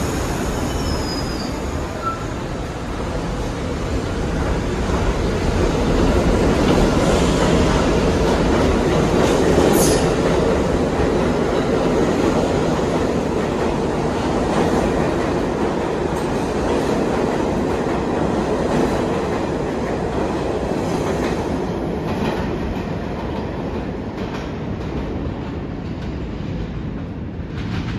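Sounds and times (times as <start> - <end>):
high squeal: 0.0 - 2.4
subway train wheels rumbling: 0.0 - 27.9
rail joint clicks: 22.0 - 27.9.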